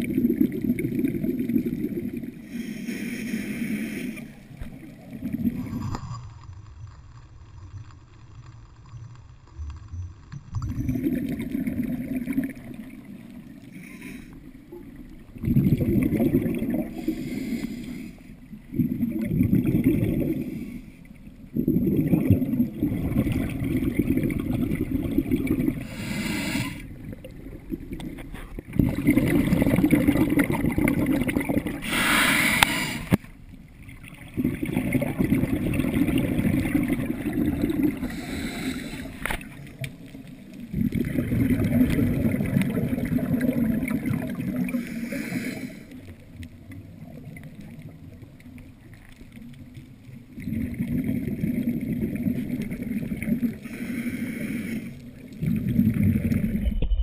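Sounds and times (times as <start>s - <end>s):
exhaled air bubbling underwater: 0.0s - 57.0s
hissing regulator inhalations: 2.4s - 4.4s, 17.0s - 18.3s, 25.8s - 26.9s, 31.8s - 33.2s, 38.0s - 39.5s, 44.7s - 46.1s, 53.6s - 55.2s.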